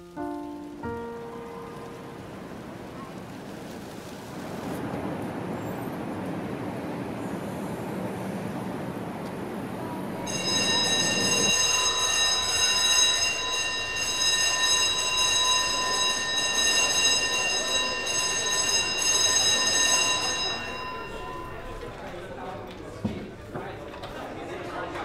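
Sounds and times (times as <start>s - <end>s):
city street traffic: 0.0s - 24.5s
high ringing tone: 10.3s - 21.7s.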